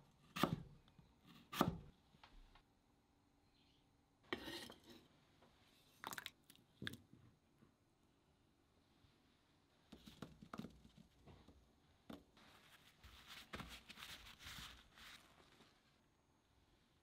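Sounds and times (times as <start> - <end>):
paper towel rustling: 12.4 - 16.1.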